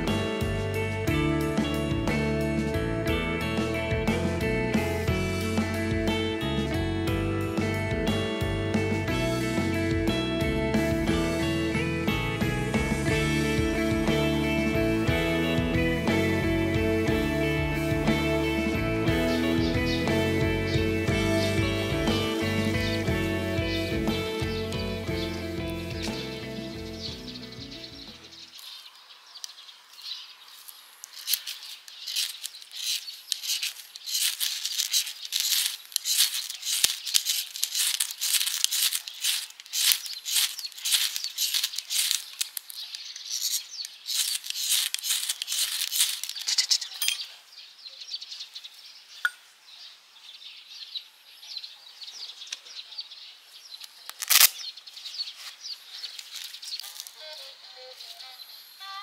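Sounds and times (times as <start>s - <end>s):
light rustling: 30.0s - 47.4s
ferro rod scraping: 30.6s - 47.2s.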